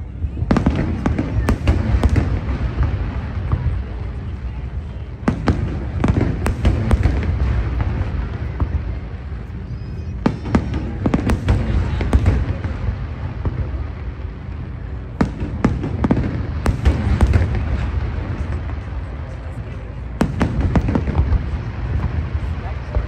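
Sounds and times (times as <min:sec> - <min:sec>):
fireworks rumbling: 0:00.0 - 0:23.0
sharp firework cracks: 0:15.1 - 0:18.7.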